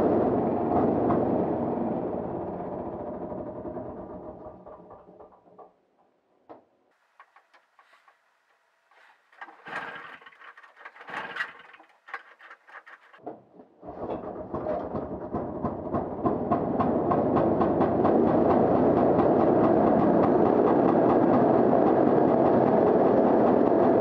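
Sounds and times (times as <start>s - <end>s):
clicks and rattles: 7.0s - 13.2s
two-stroke engine running: 9.0s - 13.2s, 15.2s - 24.0s.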